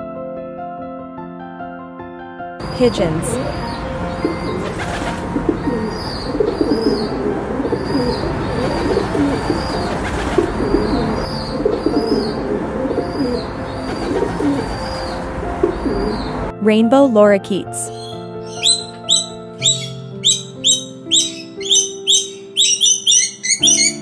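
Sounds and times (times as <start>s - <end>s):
pigeons cooing: 4.1s - 16.4s, 18.4s - 24.0s
small high chirps: 17.9s - 24.0s.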